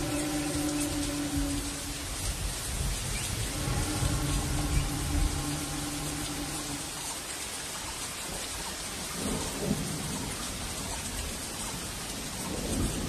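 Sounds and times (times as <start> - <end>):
low rumbling thunder: 0.0 - 7.1, 11.8 - 13.0
steady rain falling: 0.0 - 13.0.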